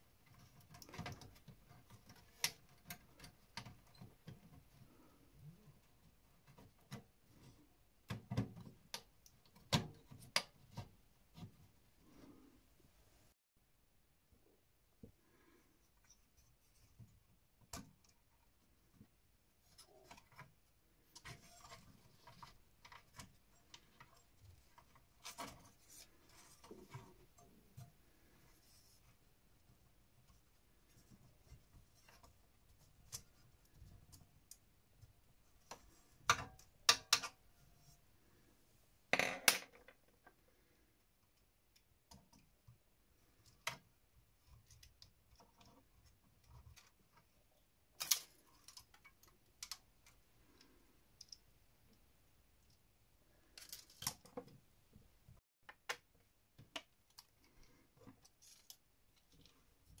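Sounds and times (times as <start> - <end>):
clicks and snaps of parts handled: 48.0 - 50.2.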